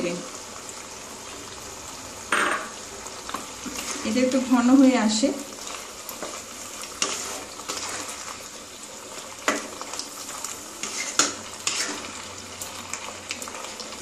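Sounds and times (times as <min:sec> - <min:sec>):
sauce sizzling: 0:00.0 - 0:14.0
spatula scraping thick sauce: 0:03.6 - 0:04.1, 0:06.2 - 0:08.5, 0:10.8 - 0:12.2.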